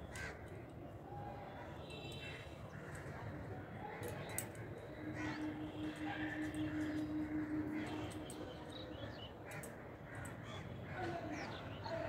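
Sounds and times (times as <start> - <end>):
crows cawing: 0.1 - 0.5, 3.9 - 12.0.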